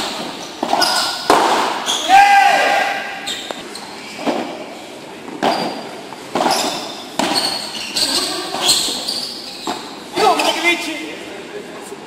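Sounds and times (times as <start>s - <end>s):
padel ball struck by rackets: 0.6s - 1.8s.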